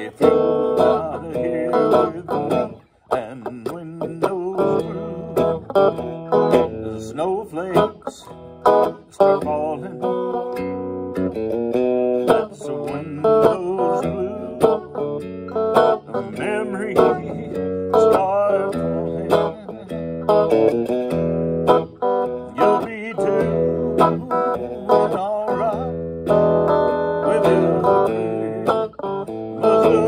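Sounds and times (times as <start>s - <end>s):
electric guitar melody with bends: 0.0s - 30.0s.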